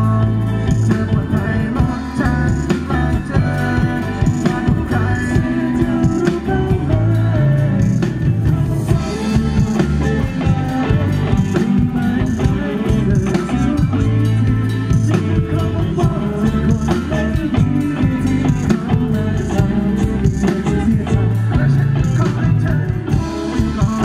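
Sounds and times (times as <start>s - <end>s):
drum kit: 0.0s - 24.0s
electric bass: 0.0s - 24.0s
electric guitars: 0.0s - 24.0s.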